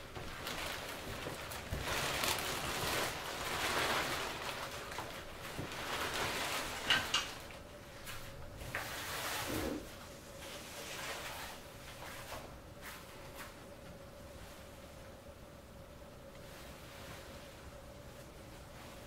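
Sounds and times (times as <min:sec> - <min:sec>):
garment bag rustling: 0:00.0 - 0:07.6.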